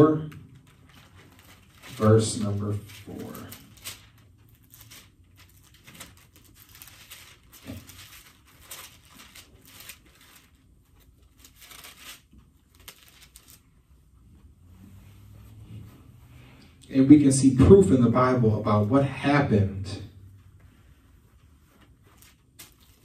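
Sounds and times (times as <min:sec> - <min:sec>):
paper pages rustling: 0:00.5 - 0:13.7, 0:20.4 - 0:23.0.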